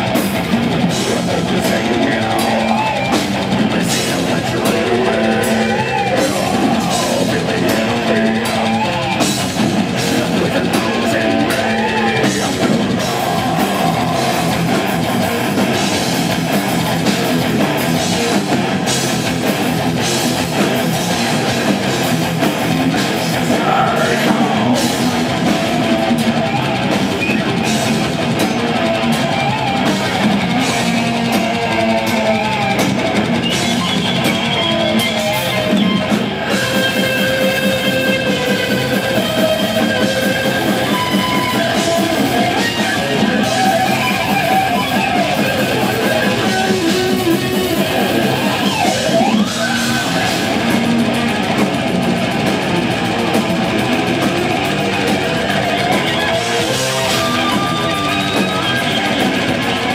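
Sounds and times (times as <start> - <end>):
death metal band playing live: 0.0 - 59.9
distorted electric guitars: 0.0 - 59.9
pounding drum kit: 0.0 - 59.9
person singing: 0.9 - 15.8, 23.0 - 26.1.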